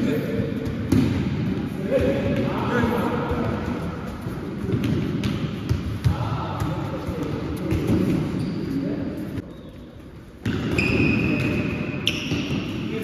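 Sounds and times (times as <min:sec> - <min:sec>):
balls slapping and thudding: 0:00.6 - 0:08.4.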